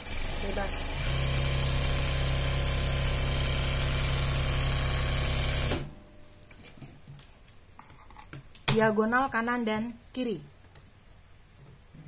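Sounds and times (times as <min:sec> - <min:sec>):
electric sewing machine running: 0:00.0 - 0:05.9.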